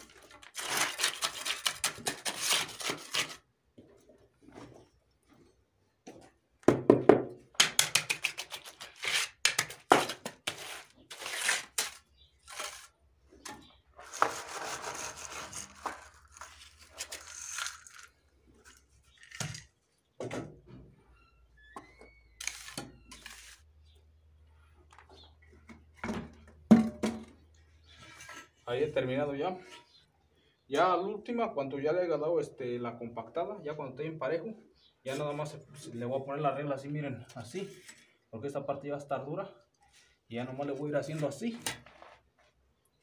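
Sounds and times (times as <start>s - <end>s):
trowel scraping wet concrete: 7.6s - 13.0s, 14.0s - 18.8s, 22.5s - 23.7s.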